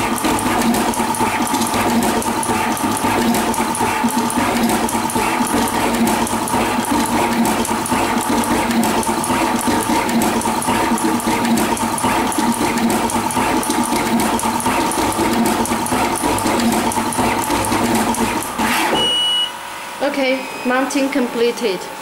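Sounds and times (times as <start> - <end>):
machine motors whirring hum: 0.0 - 22.0.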